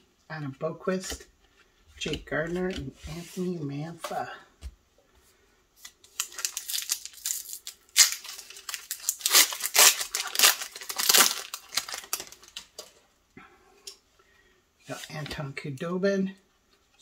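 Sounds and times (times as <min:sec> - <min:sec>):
foil wrapper tearing and crinkling: 0:05.8 - 0:12.7.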